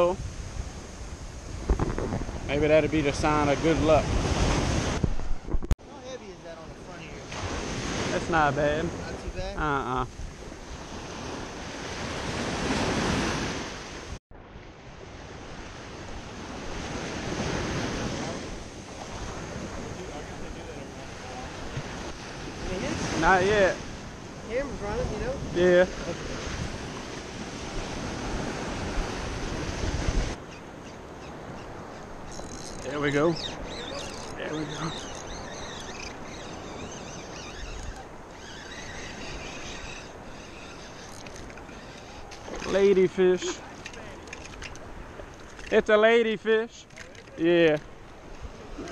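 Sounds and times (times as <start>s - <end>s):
low wind rumble: 0.0s - 5.7s
wind on microphone: 0.0s - 5.8s, 6.8s - 45.7s
surf breaking on beach: 6.6s - 30.4s, 41.4s - 46.7s.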